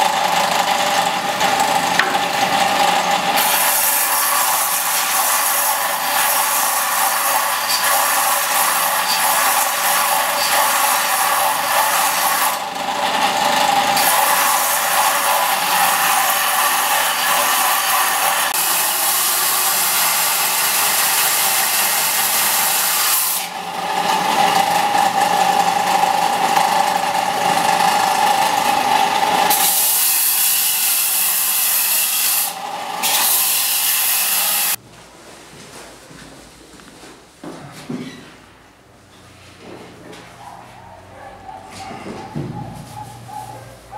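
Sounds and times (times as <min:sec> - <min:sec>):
sander motor hum: 0:00.0 - 0:03.4
disc sander grinding blade: 0:00.0 - 0:34.8.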